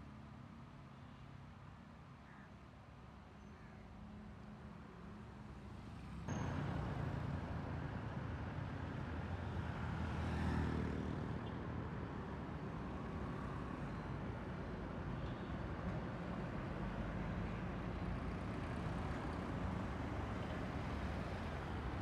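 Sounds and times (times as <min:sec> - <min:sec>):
road traffic engines: 0:03.0 - 0:22.0.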